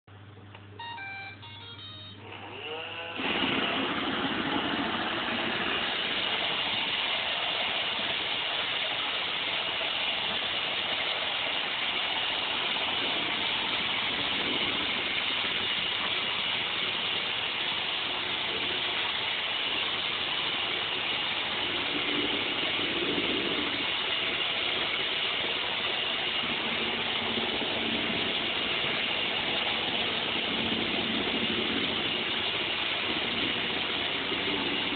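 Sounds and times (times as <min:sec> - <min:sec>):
electronic beep tune: 0:00.8 - 0:02.3
robot vacuum motors whirring: 0:02.2 - 0:08.8.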